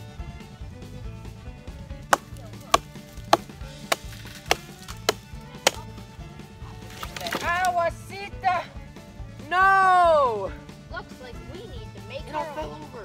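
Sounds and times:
background music: 0:00.0 - 0:13.0
hatchet chopping into a log: 0:02.0 - 0:06.0.

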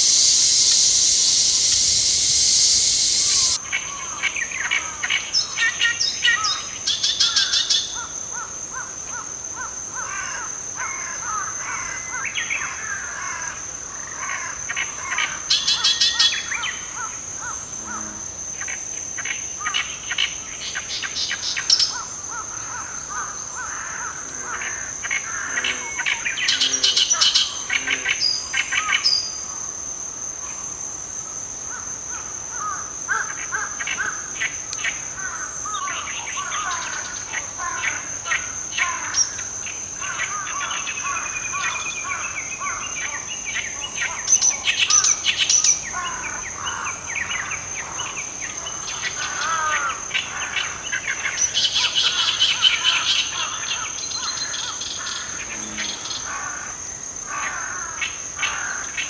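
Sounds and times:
warbler singing harsh chattering: 0:00.0 - 0:03.6
high-pitched insect trill: 0:00.0 - 0:59.0.

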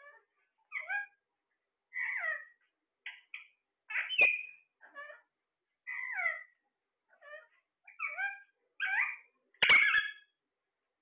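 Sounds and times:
parakeets squawking: 0:01.9 - 0:02.6, 0:03.2 - 0:05.3, 0:05.9 - 0:10.3.

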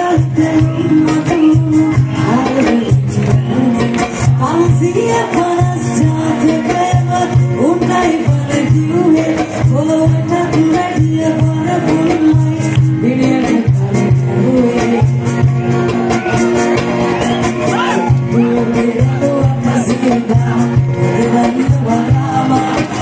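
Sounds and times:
person singing: 0:00.0 - 0:16.7, 0:17.6 - 0:23.0
live band playing: 0:00.0 - 0:23.0.

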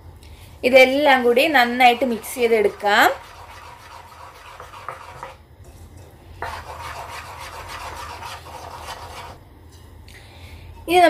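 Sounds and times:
spoon stirring batter in a bowl: 0:01.9 - 0:09.4.

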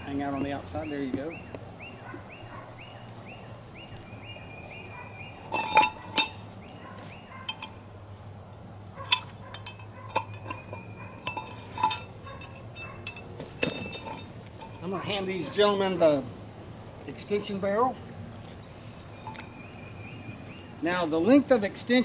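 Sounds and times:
bird chirping: 0:00.0 - 0:07.8, 0:08.6 - 0:11.4, 0:18.3 - 0:21.2
metal parts clinking: 0:05.4 - 0:06.5, 0:07.4 - 0:07.8, 0:09.0 - 0:15.0.

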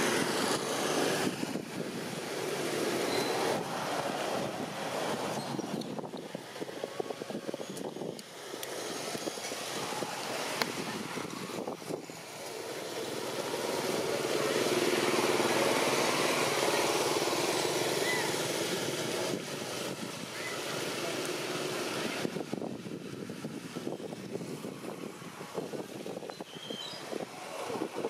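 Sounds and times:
vehicle engine passing: 0:08.4 - 0:22.6.

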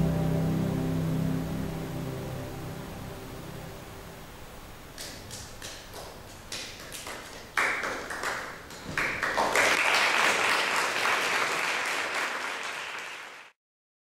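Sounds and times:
audience applauding: 0:05.0 - 0:13.6.

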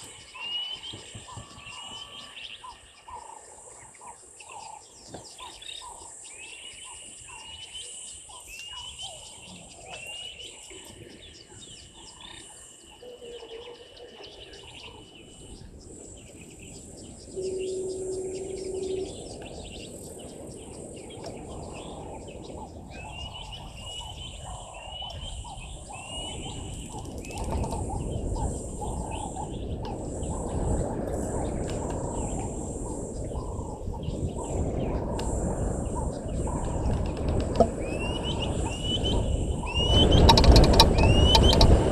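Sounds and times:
birds chirping: 0:00.0 - 0:41.9
high insect drone: 0:14.8 - 0:23.8.

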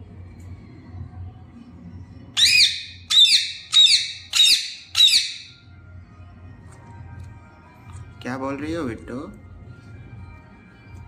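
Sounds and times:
parakeet squawking: 0:02.4 - 0:05.6.

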